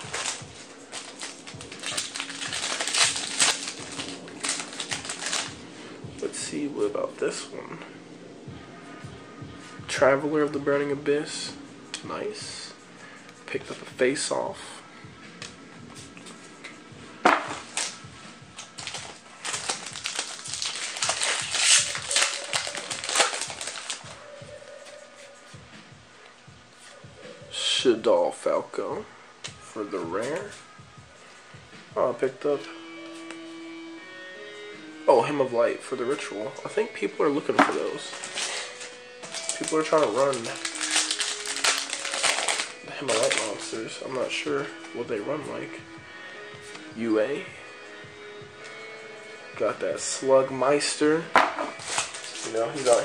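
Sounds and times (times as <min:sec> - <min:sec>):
foil wrapper crinkling: 0:00.0 - 0:05.6, 0:17.6 - 0:18.0, 0:18.6 - 0:24.2, 0:37.7 - 0:43.7, 0:51.7 - 0:53.0
trading cards rustling: 0:00.0 - 0:05.6, 0:17.4 - 0:18.0, 0:18.6 - 0:24.2, 0:37.6 - 0:44.2, 0:51.4 - 0:53.0.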